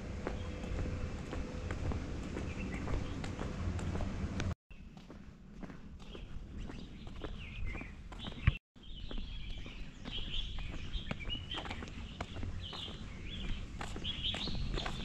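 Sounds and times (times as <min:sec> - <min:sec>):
low steady rumble: 0:00.0 - 0:04.5
footsteps on a trail: 0:00.0 - 0:15.0
small birds chirping: 0:00.2 - 0:04.0, 0:06.0 - 0:15.0.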